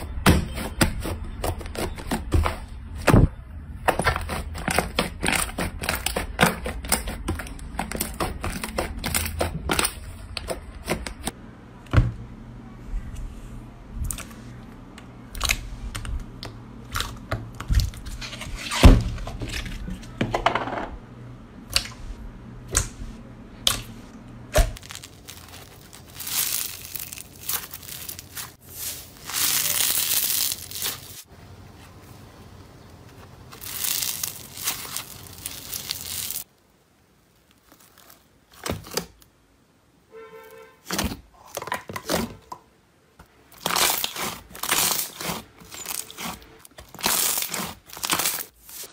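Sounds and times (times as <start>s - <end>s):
crackling slime squeezes: 24.8s - 31.3s, 33.5s - 36.5s, 43.6s - 48.9s.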